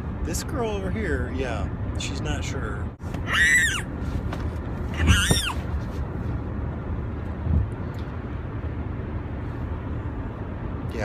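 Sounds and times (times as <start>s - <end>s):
car road rumble: 0.0s - 11.0s
child squealing: 3.2s - 3.9s, 5.0s - 5.6s.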